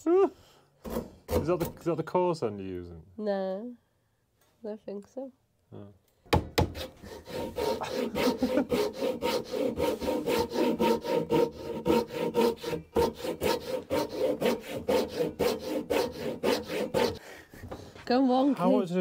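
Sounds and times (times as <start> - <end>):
hand saw cutting wood: 0.8 - 1.8, 6.6 - 17.9.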